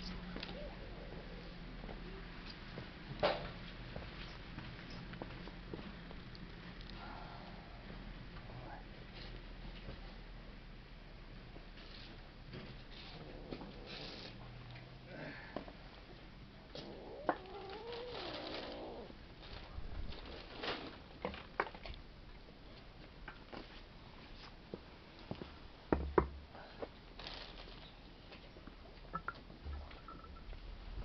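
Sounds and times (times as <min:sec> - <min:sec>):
cat meowing: 0:16.8 - 0:19.1.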